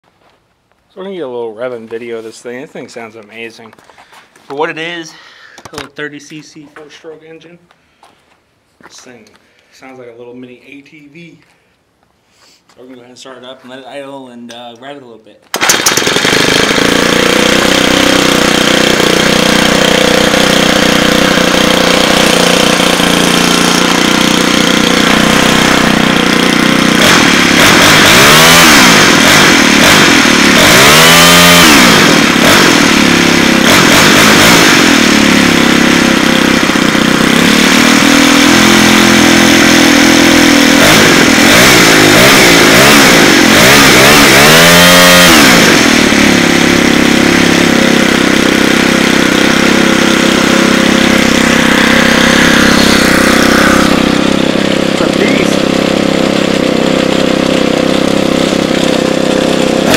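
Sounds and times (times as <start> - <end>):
string trimmer engine revving: 15.5 - 59.9.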